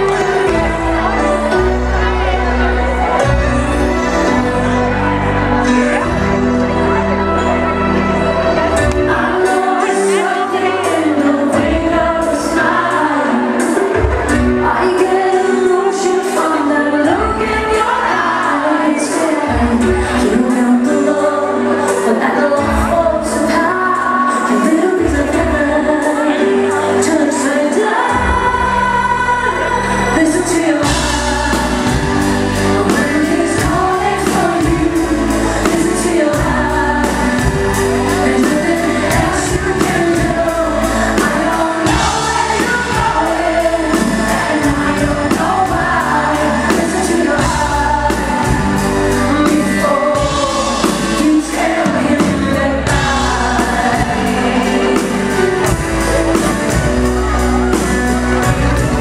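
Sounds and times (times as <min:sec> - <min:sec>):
bass guitar: 0:00.0 - 0:15.8, 0:28.1 - 0:59.0
live rock band playing: 0:00.0 - 0:59.0
woman singing: 0:08.0 - 0:59.0.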